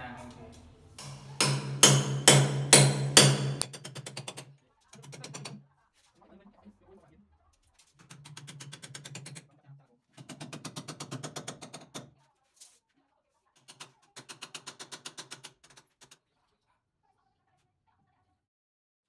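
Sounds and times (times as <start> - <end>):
hammer knocking on steel rebar: 1.0 - 4.4.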